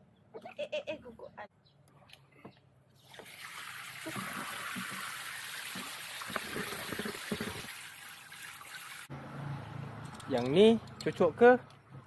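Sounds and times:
water splashing into plastic tub: 3.0 - 9.1.

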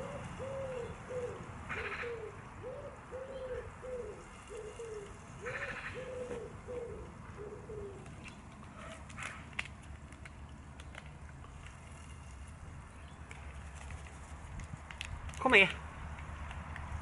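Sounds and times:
wood pigeon cooing: 0.0 - 9.0.

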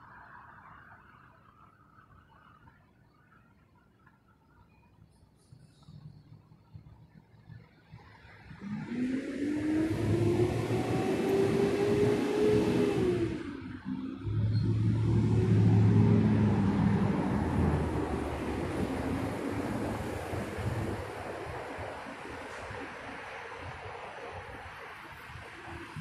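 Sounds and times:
road noise rushing: 8.2 - 26.0
cars accelerating past: 8.4 - 26.0.

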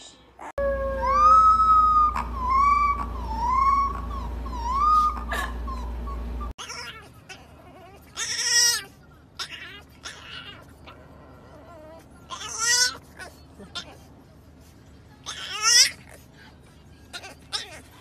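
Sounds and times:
puppy howling: 0.4 - 8.8.

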